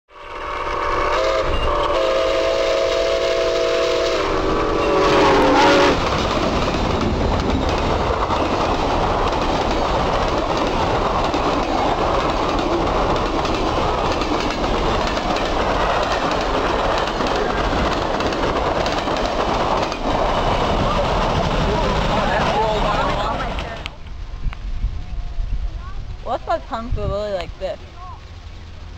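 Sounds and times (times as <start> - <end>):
steam whistle: 0.1 - 6.1
train rumbling past: 0.1 - 28.9.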